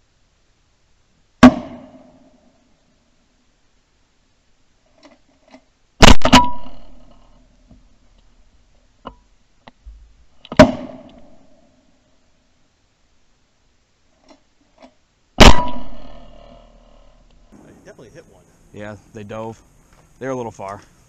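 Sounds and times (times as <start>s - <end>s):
shotgun shots with echo: 1.4s - 2.2s, 6.0s - 7.2s, 10.6s - 11.4s, 15.4s - 17.9s.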